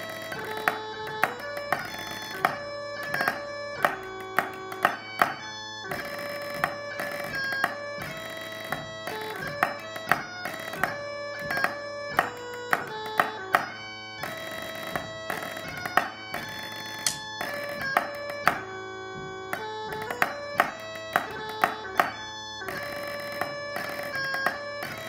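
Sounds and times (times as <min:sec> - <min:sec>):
bagpipe music: 0:00.0 - 0:25.0
drumsticks on practice pad: 0:00.0 - 0:25.0.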